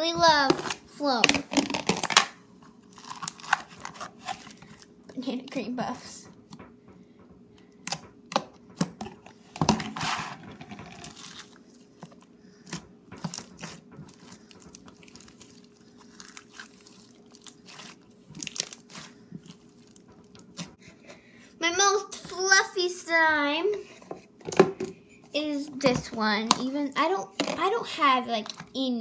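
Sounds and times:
slime crackling and popping: 0.7s - 4.9s, 13.3s - 20.7s.

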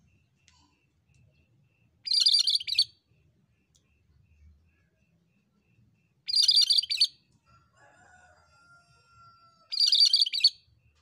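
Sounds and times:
bird chattering song: 1.4s - 3.0s, 6.3s - 7.2s, 9.7s - 10.6s.

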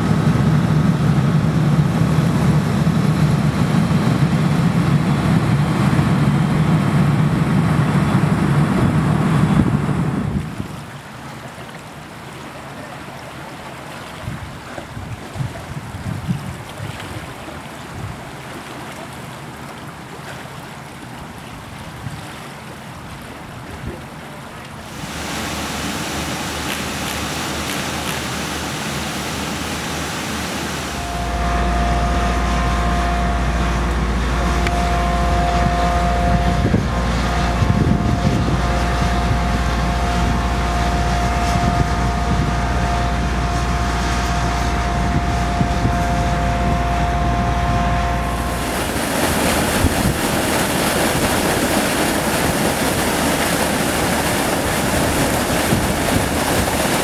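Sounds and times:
motor drone with whine: 0.0s - 10.4s, 29.3s - 57.0s
water pouring and splashing: 10.2s - 31.3s, 48.2s - 57.0s.

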